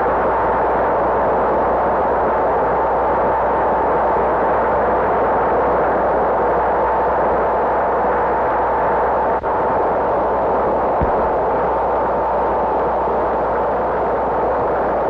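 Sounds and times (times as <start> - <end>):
steady rushing noise: 10.8 - 12.9
short low thump: 11.0 - 11.6.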